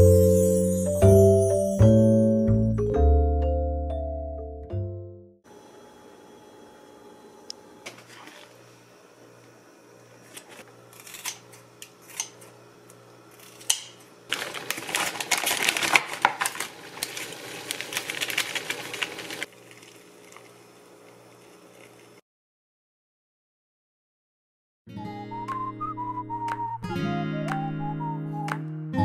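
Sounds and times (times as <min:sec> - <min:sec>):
plastic bag crinkling: 0:14.3 - 0:20.7.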